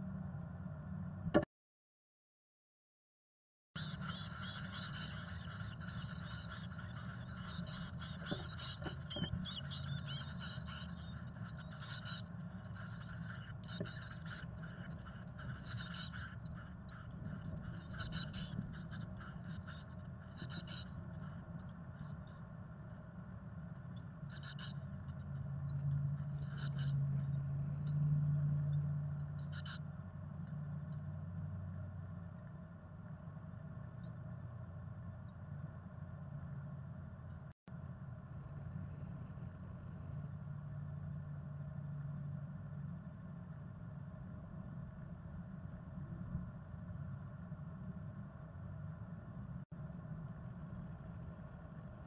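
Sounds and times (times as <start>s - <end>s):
low hum: 0.0s - 1.5s, 3.8s - 52.0s
birds scratching in nest box: 3.8s - 19.8s
nestlings peeping: 3.8s - 22.4s, 23.8s - 25.5s, 26.2s - 27.9s, 29.2s - 29.8s
low steady drone: 3.8s - 52.0s.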